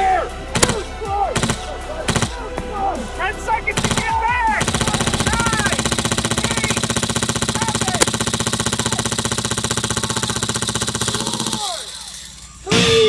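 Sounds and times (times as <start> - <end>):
airsoft gun full-auto burst: 0.6 - 2.4, 3.8 - 12.6.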